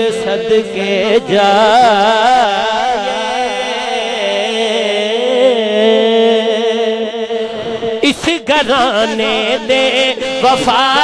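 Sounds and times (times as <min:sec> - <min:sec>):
man singing amplified: 0:00.0 - 0:11.0.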